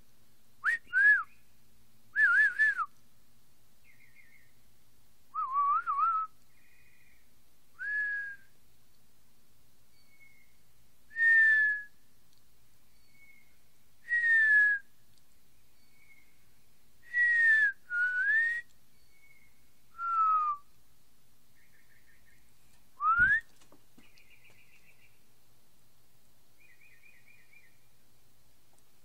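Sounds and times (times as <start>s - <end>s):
person whistling: 0.6s - 1.3s, 5.4s - 6.3s, 7.8s - 8.4s, 11.2s - 11.9s, 14.1s - 14.8s, 17.1s - 18.7s, 20.0s - 20.7s, 23.0s - 23.5s
birds whistling: 3.8s - 4.5s, 10.0s - 10.6s, 12.9s - 14.7s, 15.8s - 16.4s, 17.1s - 20.6s, 21.6s - 25.2s, 26.6s - 27.9s.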